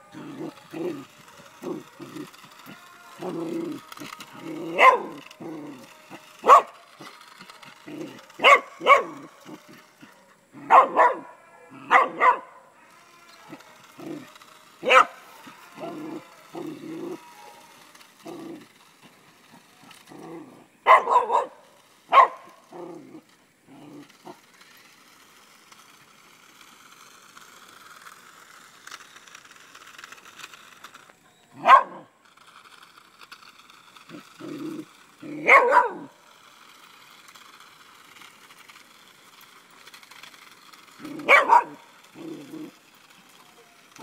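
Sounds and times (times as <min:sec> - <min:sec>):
dog yelping: 0:04.6 - 0:05.6, 0:10.6 - 0:12.6, 0:14.8 - 0:15.2, 0:35.3 - 0:36.1, 0:41.1 - 0:42.4
dog barking: 0:04.8 - 0:05.1, 0:06.4 - 0:06.7, 0:08.4 - 0:09.2, 0:10.6 - 0:12.6, 0:14.8 - 0:15.2, 0:20.8 - 0:22.4, 0:31.6 - 0:32.0, 0:35.4 - 0:36.1, 0:41.2 - 0:41.8.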